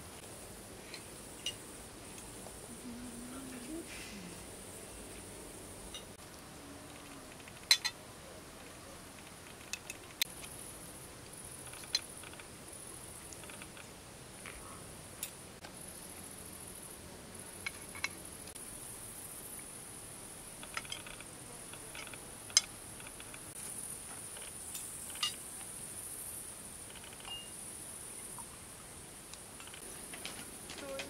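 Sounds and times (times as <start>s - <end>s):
insects chirring: 0.0s - 8.0s, 8.6s - 31.0s
cutlery clicking on a plate: 7.6s - 8.0s.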